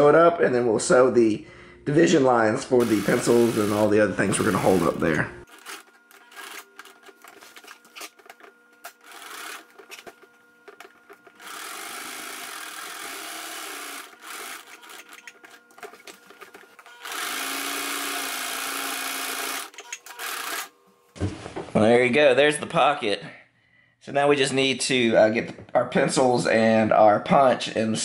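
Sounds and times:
sewing machine stitching: 2.8s - 8.2s, 8.9s - 20.7s.

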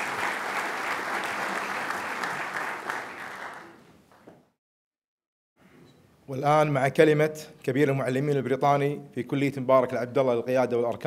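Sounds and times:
audience applauding: 0.0s - 3.9s.

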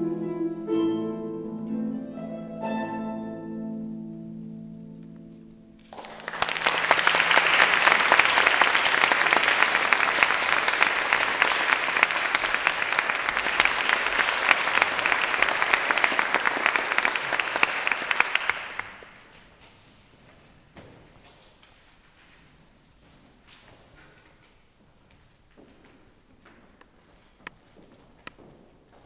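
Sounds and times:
audience applause: 5.8s - 19.3s.

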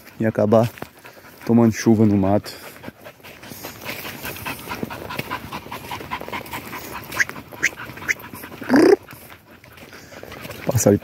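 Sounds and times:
dog panting: 0.0s - 11.0s
dog yelping: 7.0s - 9.1s.

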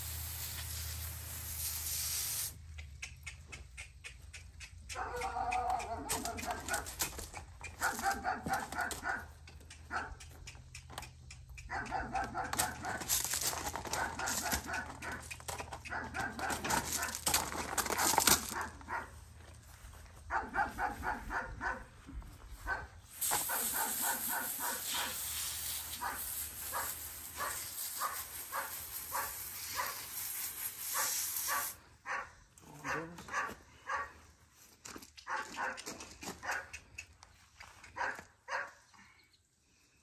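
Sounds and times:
steady hiss: 0.0s - 2.7s, 23.1s - 31.9s
dog barking rapidly: 4.9s - 7.0s, 7.7s - 10.3s, 11.6s - 13.1s, 13.8s - 19.2s, 20.3s - 21.9s, 22.7s - 25.2s, 26.0s - 30.0s, 30.9s - 34.2s, 35.3s - 36.8s, 38.0s - 38.8s.

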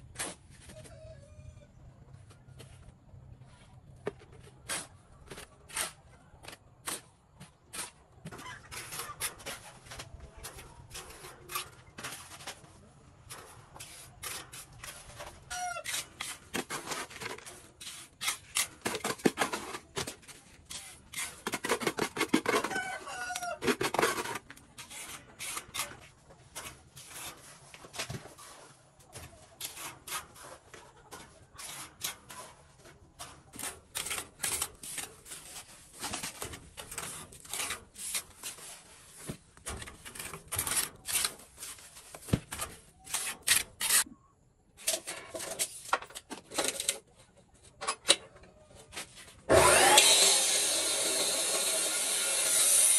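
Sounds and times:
trowel scraping wet mortar: 4.4s - 12.6s, 13.3s - 28.5s, 29.2s - 44.2s
rooster crowing: 22.6s - 23.6s.

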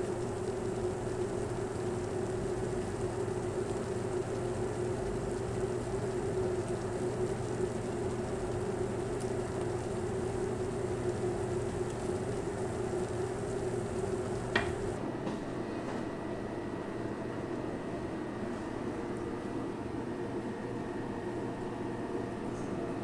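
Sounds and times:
low hum: 0.0s - 15.0s
sauce bubbling in pot: 0.0s - 15.0s.

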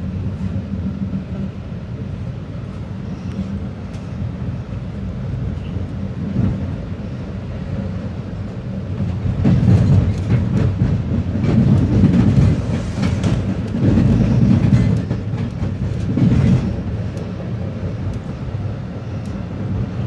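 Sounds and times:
train low rumble: 0.0s - 20.0s
wheels clacking over rail joints: 7.8s - 20.0s.

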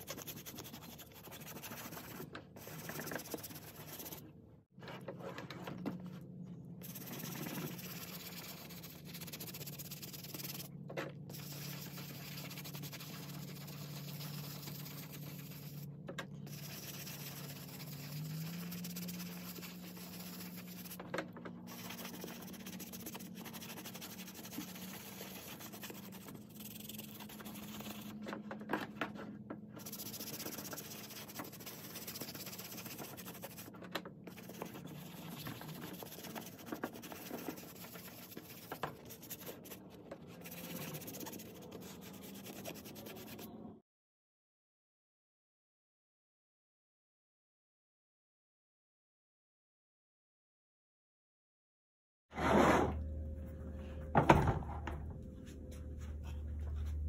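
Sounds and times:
brush scrubbing wet suede: 0.0s - 4.2s, 6.8s - 10.7s, 11.3s - 15.9s, 16.5s - 21.0s, 21.7s - 28.2s, 29.8s - 33.7s, 34.3s - 43.5s.

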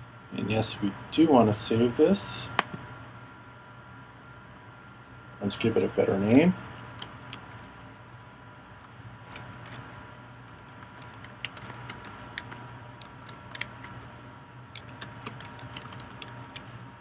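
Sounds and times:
faint steady hum: 0.0s - 17.0s
typing on a keyboard: 7.0s - 7.6s, 9.3s - 9.9s, 10.5s - 14.1s, 14.8s - 16.7s.

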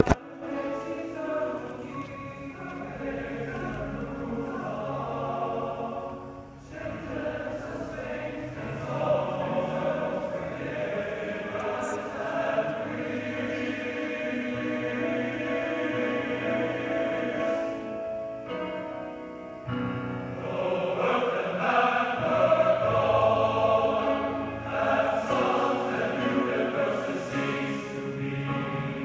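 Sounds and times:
men's choir singing chords: 0.0s - 18.9s, 19.9s - 29.0s.

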